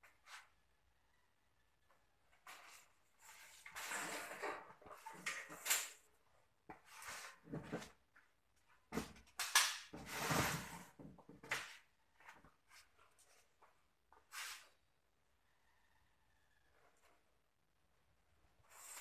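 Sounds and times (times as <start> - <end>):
wire rustling and scraping on concrete: 2.3 - 6.1, 6.7 - 8.0, 18.6 - 19.0.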